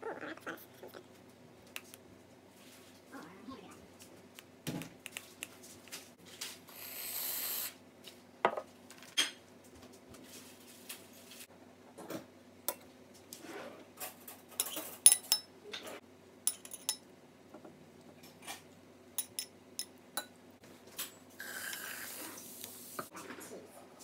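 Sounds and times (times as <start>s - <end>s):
aerosol whipped cream hiss: 6.8s - 7.8s, 21.4s - 23.1s
spoon clinking on glass: 14.6s - 15.5s, 16.5s - 17.0s, 19.2s - 20.3s.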